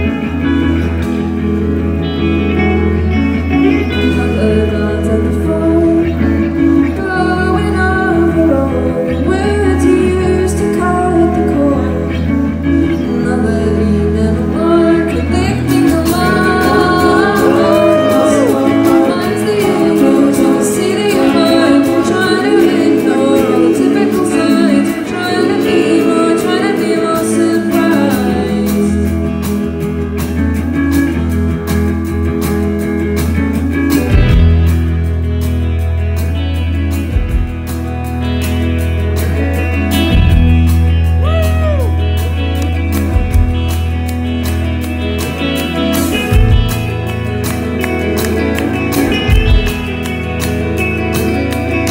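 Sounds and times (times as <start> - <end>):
live rock band playing: 0.0 - 51.9
woman singing: 3.6 - 29.4.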